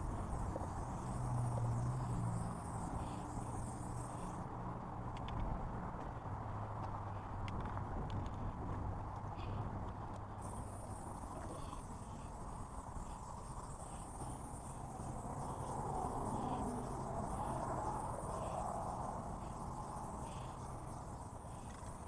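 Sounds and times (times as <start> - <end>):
high insect trill: 0.0 - 4.4, 10.4 - 22.0
spray paint can hissing: 0.0 - 4.4, 10.4 - 22.0.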